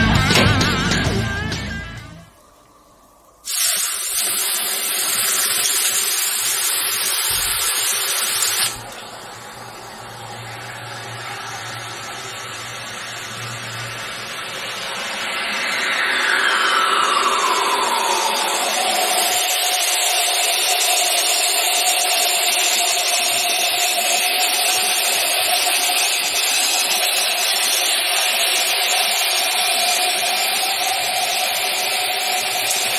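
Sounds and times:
music: 0.0 - 2.4
hot metal sizzling on ice: 3.4 - 9.0, 18.8 - 32.9
falling whistle-like tone: 9.0 - 32.9.

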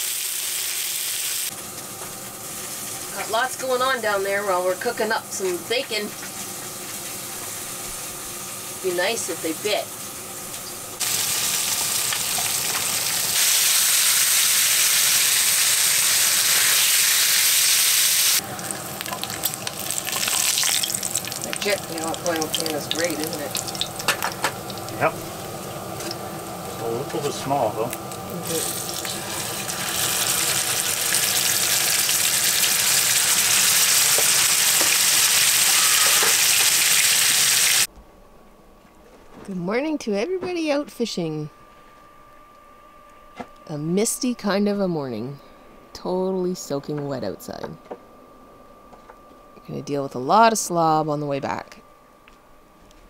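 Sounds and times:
bacon sizzling in a frying pan: 0.0 - 26.8, 27.8 - 37.9.

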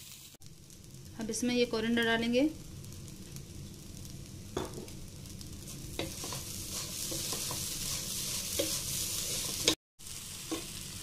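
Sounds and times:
light sizzle: 0.0 - 11.0
spatula stirring in a pot: 5.6 - 9.8.

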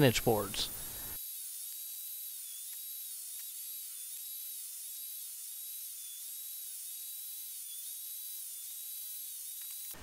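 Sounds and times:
table saw motor whine: 0.8 - 10.0.

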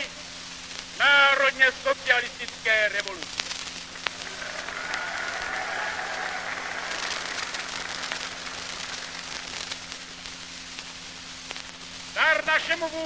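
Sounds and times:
steady hum: 0.0 - 13.0
large crowd applauding: 4.0 - 9.9.

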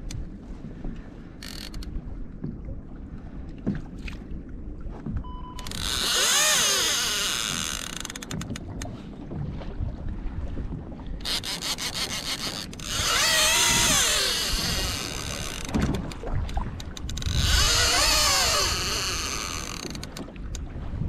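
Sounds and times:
fishing reel drag screaming: 5.6 - 8.1, 11.2 - 15.7, 17.3 - 20.0.

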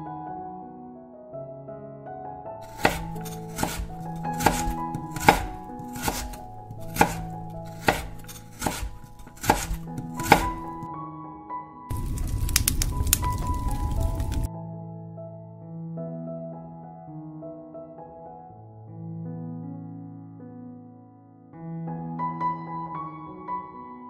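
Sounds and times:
knife chopping on wooden board: 2.6 - 10.9
fish sizzling over charcoal: 11.9 - 14.5.

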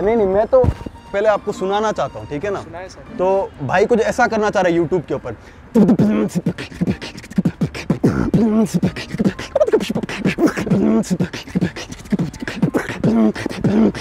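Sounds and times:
man beatboxing: 5.7 - 14.0
hummed vocal line: 5.8 - 14.0.

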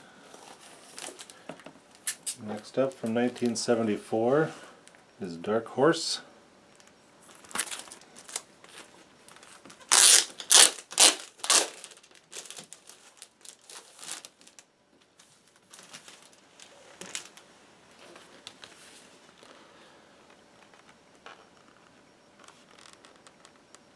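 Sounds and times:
record sleeves rustling: 0.2 - 4.7, 7.2 - 23.9.

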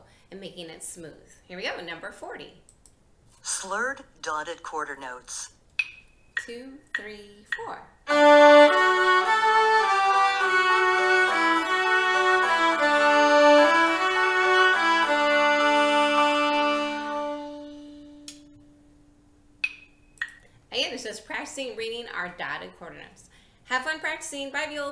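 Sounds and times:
recorded accompaniment: 7.5 - 20.4
viola playing slowly: 8.1 - 19.1.

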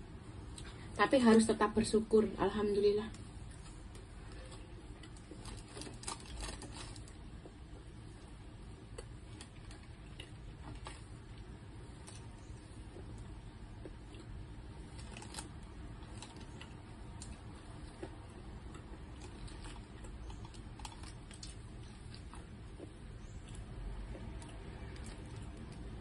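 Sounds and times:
low room hum: 0.0 - 26.0
paper wrapper crinkling: 3.6 - 7.3, 14.8 - 16.8.

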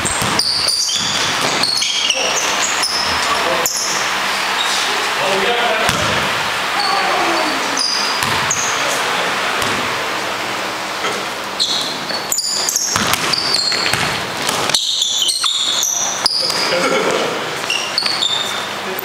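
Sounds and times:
basketball bouncing on gym floor: 0.0 - 3.1, 5.8 - 6.4, 7.8 - 8.7, 9.6 - 9.9, 11.6 - 16.7
sneaker squeaks: 0.0 - 4.9, 6.8 - 9.0, 11.1 - 16.8, 17.5 - 19.0.

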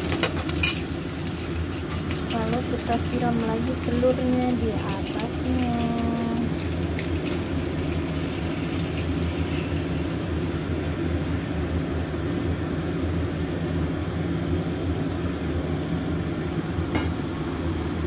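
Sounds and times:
food sizzling: 0.0 - 10.7
wok low rumble: 0.0 - 18.0.

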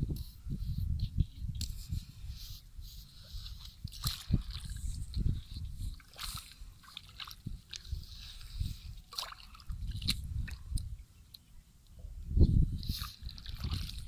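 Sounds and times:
hands squelching in wet mud: 3.4 - 10.8, 12.8 - 14.0.

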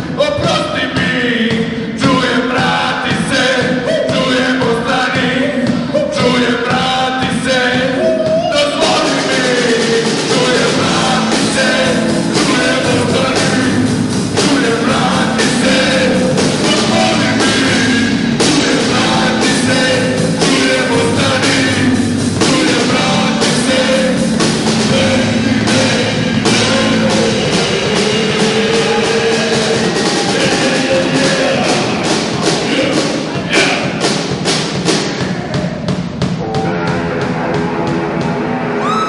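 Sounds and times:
man singing into a microphone: 0.0 - 34.0
drum kit beat: 0.0 - 39.0
electric guitars: 8.8 - 33.5.

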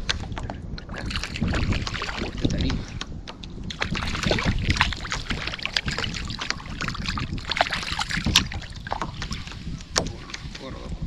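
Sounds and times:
wind rumble on microphone: 0.0 - 11.0
fish splashing at water surface: 1.0 - 2.8, 3.7 - 10.5.

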